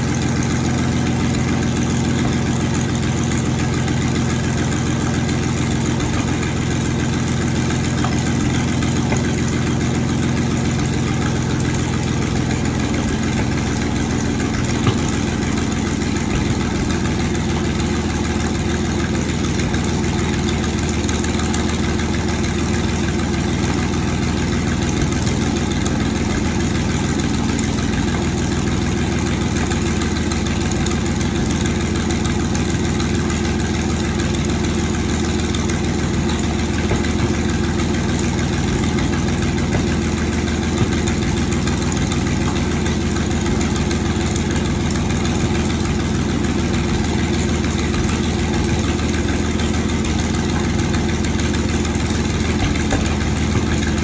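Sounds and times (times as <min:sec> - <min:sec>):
tank engine idling: 0:00.0 - 0:54.0.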